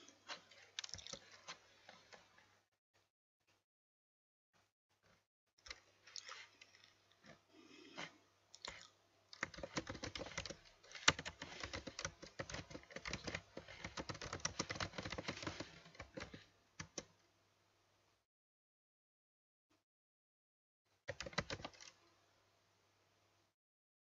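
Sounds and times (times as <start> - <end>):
typing on computer keyboard: 9.4 - 17.1, 21.1 - 22.0.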